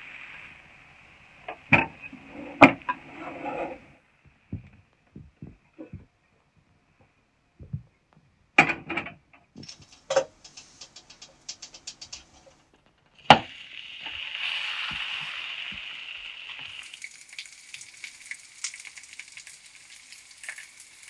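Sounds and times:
eggs sizzling in pan: 0.0s - 4.0s, 9.6s - 21.0s
frying pan and utensils clattering: 8.6s - 12.6s
light rapid ticking: 9.6s - 12.7s.

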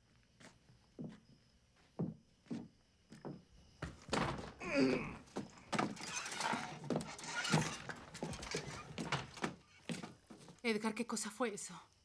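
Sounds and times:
heavy footsteps on boards: 1.9s - 10.6s
door creaking open: 3.8s - 10.1s
thuds and clatter: 3.8s - 10.2s.

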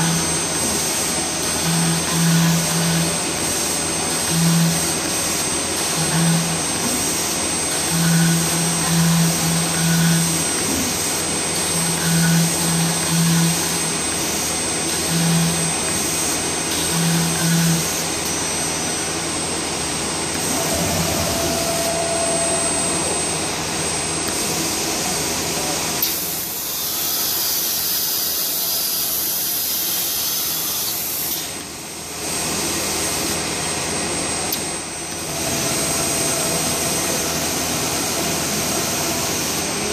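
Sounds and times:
router spindle cutting panel: 0.0s - 18.0s.

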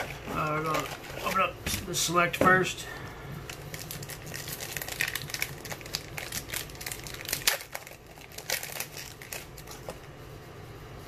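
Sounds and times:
foil wrapper crinkling and tearing: 0.0s - 1.6s, 3.4s - 10.1s.

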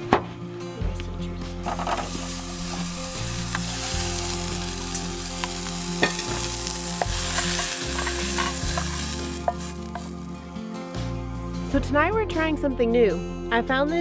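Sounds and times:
zucchini sizzling in a frying pan: 2.0s - 10.3s.

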